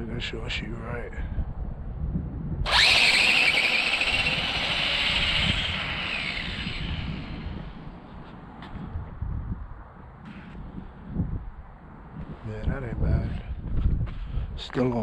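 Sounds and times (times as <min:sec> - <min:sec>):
rc car motor whine: 0:02.6 - 0:08.0.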